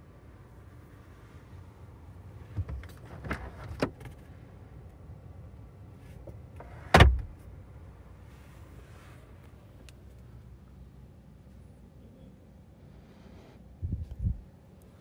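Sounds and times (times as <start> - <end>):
glovebox shutting thump: 6.8 - 7.4.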